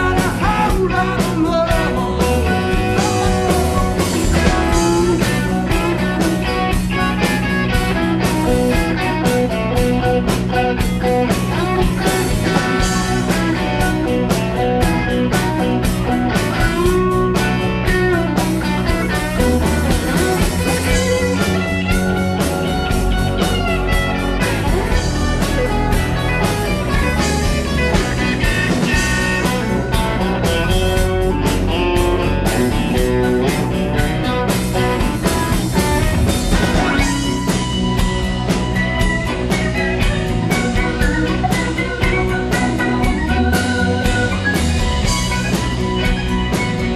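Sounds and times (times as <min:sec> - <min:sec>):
bass guitar: 0:00.0 - 0:46.9
electric guitar lead: 0:00.0 - 0:46.9
drum hits: 0:11.1 - 0:42.4.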